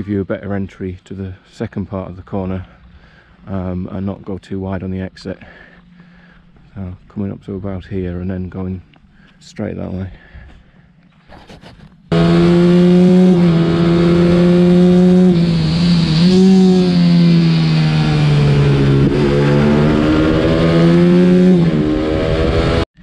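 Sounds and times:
minibike engine at high revs: 12.1s - 22.8s.

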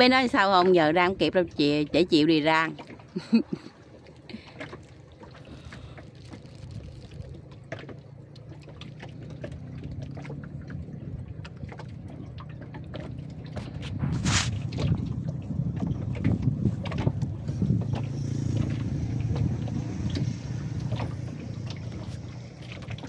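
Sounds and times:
water drips and small splashes: 0.0s - 23.0s
water lapping around boat hull: 0.0s - 23.0s
low rumble: 3.8s - 23.0s.

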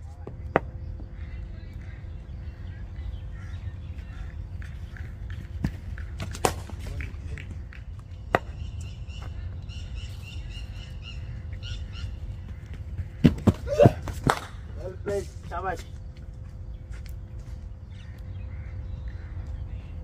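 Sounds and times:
birds chirping: 0.1s - 20.0s
cricket bat striking ball: 4.9s - 8.8s, 13.2s - 14.7s.

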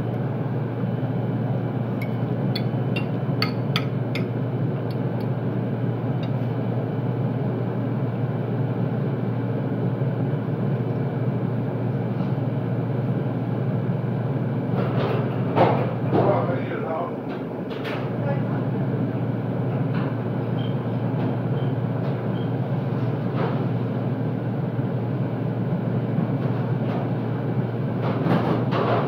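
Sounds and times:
kitchen ventilation hum: 0.0s - 29.0s
fork clinking on plate: 2.0s - 4.3s.

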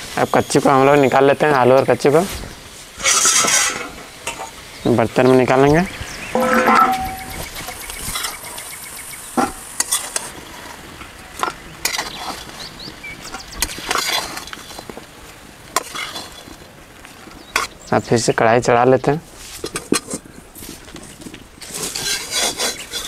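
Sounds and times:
metal spoon scraping a pan: 3.0s - 4.4s, 6.4s - 7.4s, 15.8s - 16.5s, 21.7s - 23.0s.

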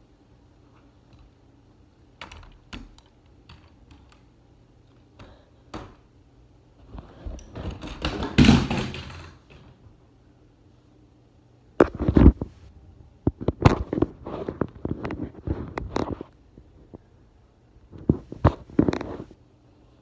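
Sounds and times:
phone handling rubbing and bumps: 11.8s - 12.6s, 13.2s - 16.3s, 17.9s - 19.4s.

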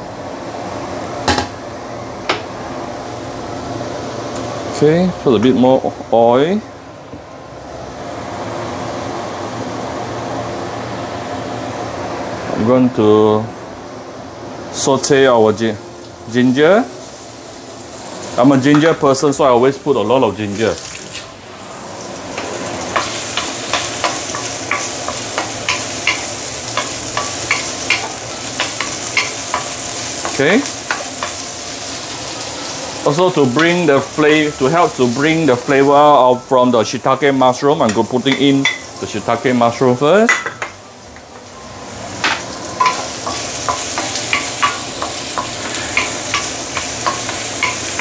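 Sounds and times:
ginger sizzling in oil: 15.0s - 48.0s.

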